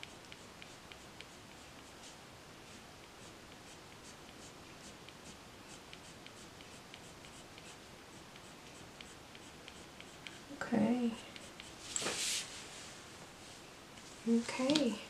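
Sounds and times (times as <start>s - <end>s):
pencil scratching on paper: 0.0s - 11.9s.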